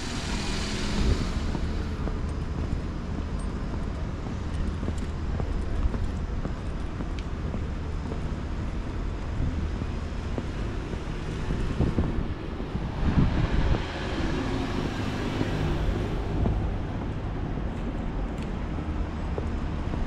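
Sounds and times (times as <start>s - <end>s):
wind on microphone: 0.0s - 18.2s
steady low rumble: 0.0s - 20.0s
vehicle passing: 11.0s - 17.7s.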